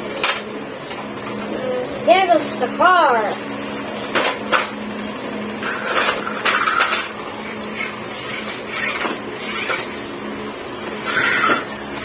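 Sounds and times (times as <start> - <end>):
steady low hum: 0.0 - 12.0
objects clattering and rustling: 5.6 - 7.2.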